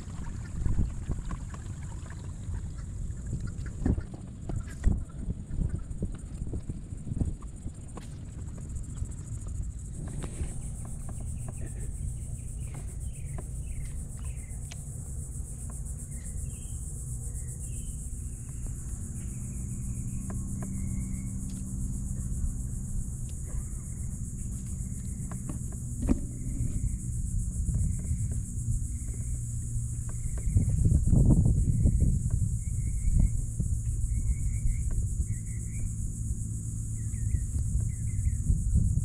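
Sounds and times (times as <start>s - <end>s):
wind rumble on microphone: 0.0s - 39.0s
high-pitched insect buzz: 8.8s - 39.0s.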